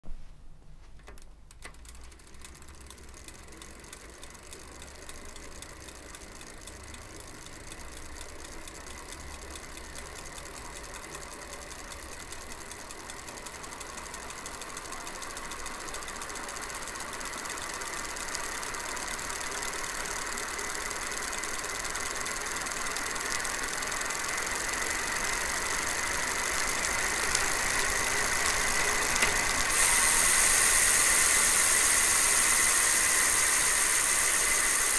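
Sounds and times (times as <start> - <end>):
ratchet ticking: 1.2 - 34.9
bicycle hub gear whirring: 1.5 - 34.9.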